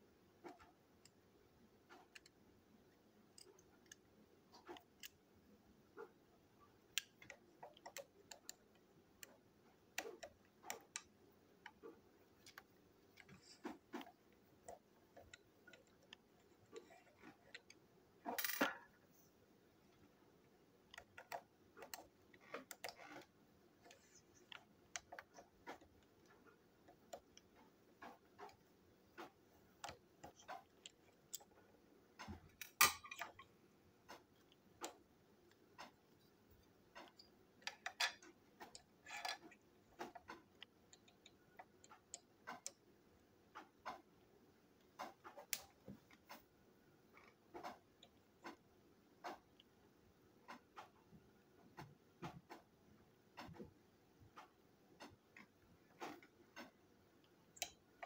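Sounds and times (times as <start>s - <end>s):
plastic toy parts clicking: 6.9s - 11.8s, 20.8s - 36.0s, 36.6s - 42.8s.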